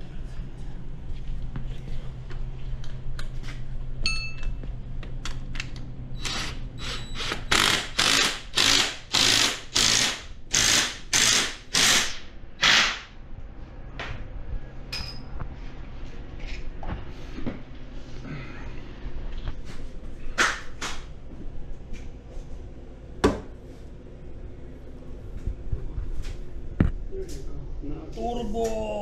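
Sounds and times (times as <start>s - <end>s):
impact driver bursts: 6.2s - 13.1s.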